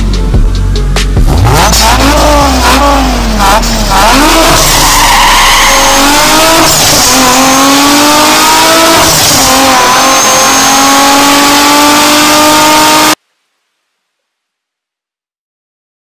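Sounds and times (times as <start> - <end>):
toy car engine revving effect: 1.4 - 12.0.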